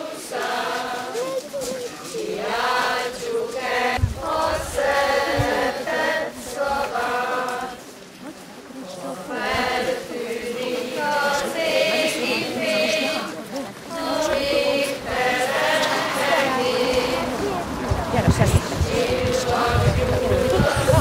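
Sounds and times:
high voices singing in unison: 0:00.0 - 0:07.9, 0:09.0 - 0:21.0
microphone handling thumps: 0:03.9 - 0:05.6.

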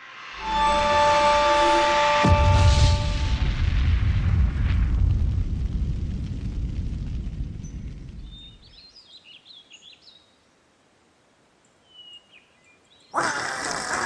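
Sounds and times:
low rumble: 0:00.0 - 0:08.8
loud harsh noise: 0:00.3 - 0:03.6.

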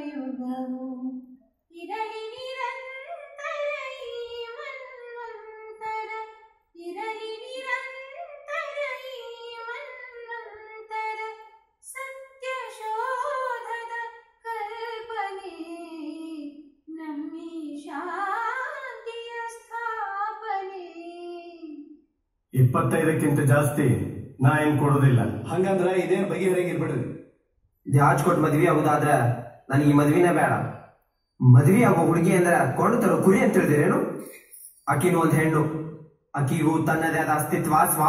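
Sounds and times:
woman singing unaccompanied: 0:00.0 - 0:21.8.

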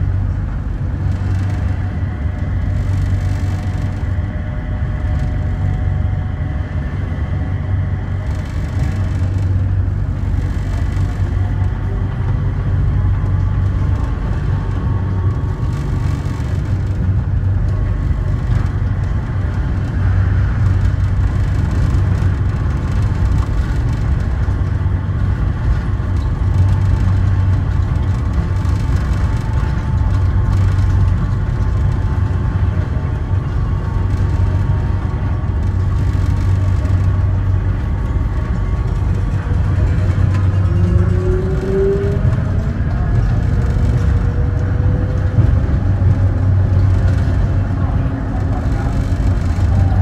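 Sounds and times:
faint train whine: 0:00.0 - 0:50.0
light-rail train rumbling on track: 0:00.0 - 0:50.0.

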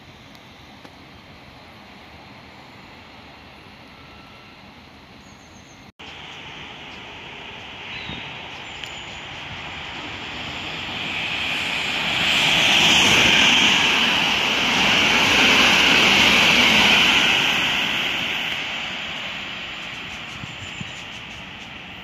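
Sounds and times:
train rushing past: 0:06.0 - 0:22.0.

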